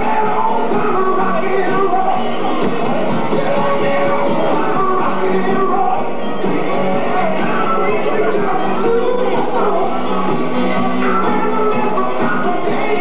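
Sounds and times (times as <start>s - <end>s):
rock and roll song with singer: 0.0s - 13.0s.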